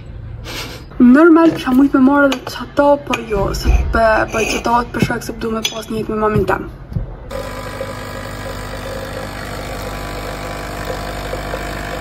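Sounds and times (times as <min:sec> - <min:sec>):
coffee machine pump buzzing: 0:07.3 - 0:12.0.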